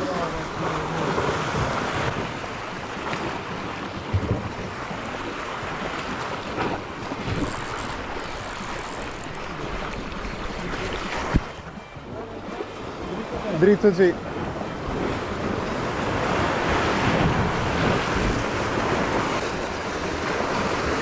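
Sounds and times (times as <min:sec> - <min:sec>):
sea water washing: 0:00.0 - 0:21.0
wind buffeting microphone: 0:14.2 - 0:21.0.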